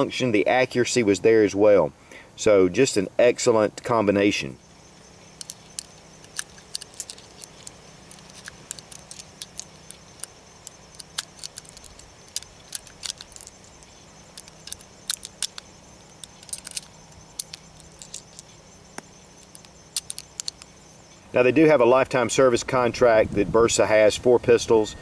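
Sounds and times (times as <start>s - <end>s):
loose rounds clinking: 5.2s - 20.8s
cartridges clicking into magazine: 5.4s - 20.7s.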